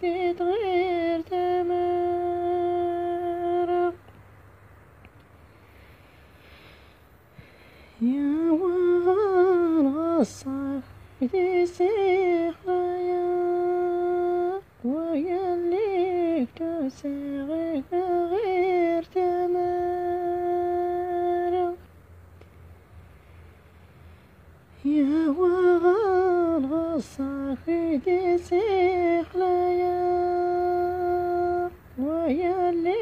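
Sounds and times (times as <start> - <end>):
woman humming a melody: 0.0 - 4.1, 8.0 - 21.8, 24.8 - 33.0.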